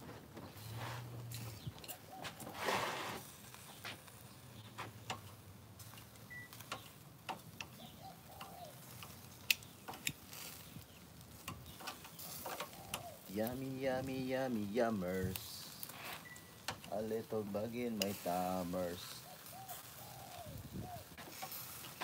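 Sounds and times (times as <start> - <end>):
metal tongs clicking on grill: 5.0 - 13.3, 16.5 - 17.2, 17.9 - 18.4, 21.3 - 22.0.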